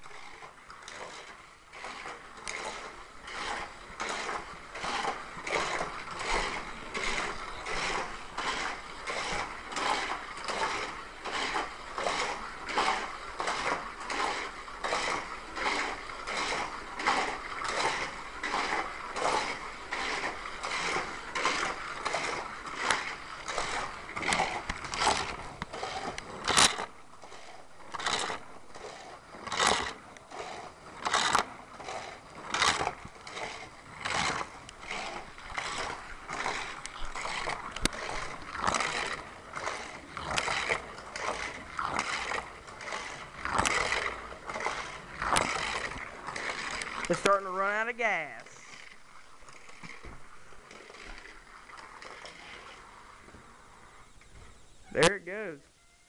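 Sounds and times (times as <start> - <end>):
toy car motors whirring: 0.2 - 52.9.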